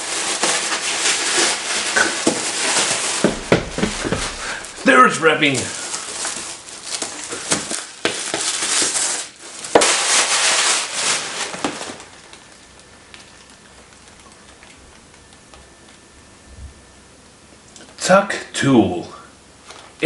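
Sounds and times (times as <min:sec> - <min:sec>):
wrapping paper tearing and crumpling: 0:00.0 - 0:14.8.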